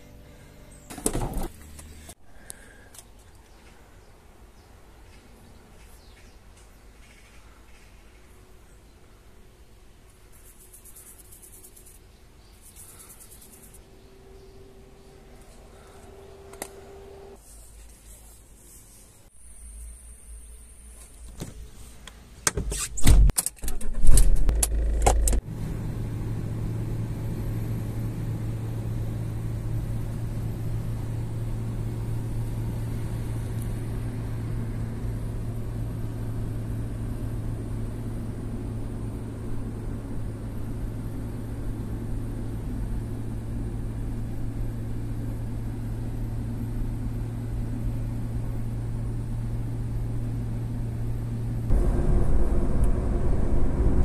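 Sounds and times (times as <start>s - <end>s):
car starter clicks and knocks: 22.4s - 25.4s
car engine humming: 24.5s - 54.0s.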